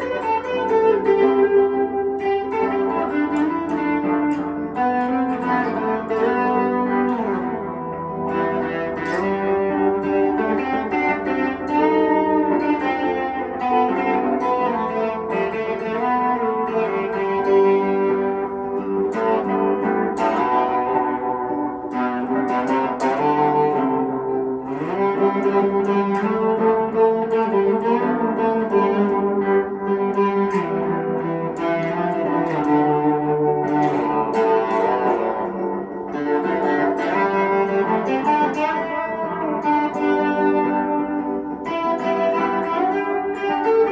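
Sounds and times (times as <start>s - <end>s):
electric guitar melody with effects: 0.0s - 43.9s.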